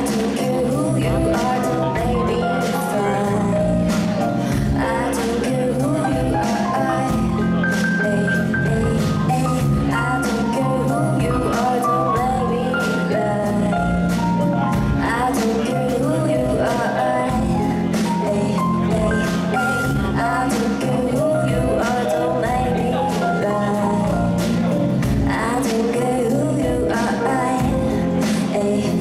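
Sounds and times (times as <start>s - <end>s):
live band playing: 0.0s - 29.0s
person singing: 0.0s - 29.0s.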